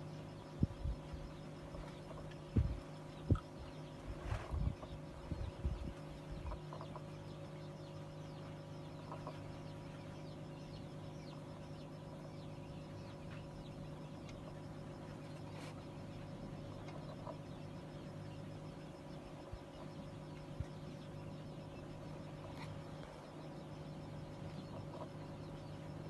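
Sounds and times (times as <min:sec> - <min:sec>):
low hum: 0:00.0 - 0:26.0
chickens clucking: 0:01.7 - 0:03.6, 0:05.9 - 0:07.8, 0:08.7 - 0:09.9, 0:16.7 - 0:17.8, 0:24.4 - 0:25.8.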